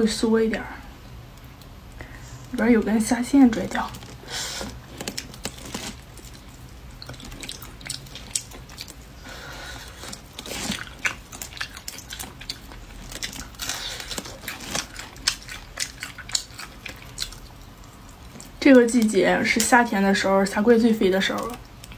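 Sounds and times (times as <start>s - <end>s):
biting and chewing: 3.5s - 19.8s, 21.1s - 21.9s
shells cracking and peeling: 3.8s - 19.7s.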